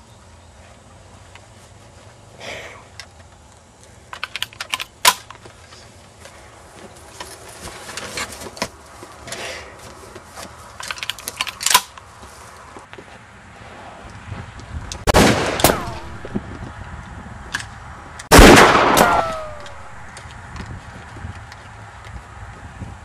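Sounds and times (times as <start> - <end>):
rustling: 3.2 - 13.8
sharp mechanical clicks and knocks: 4.1 - 5.4.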